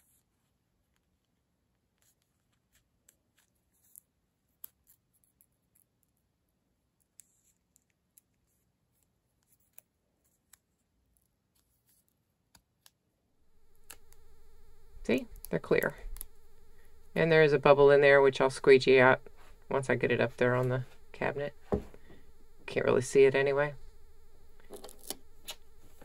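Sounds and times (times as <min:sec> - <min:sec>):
sticker paper peeling: 0:24.6 - 0:26.0.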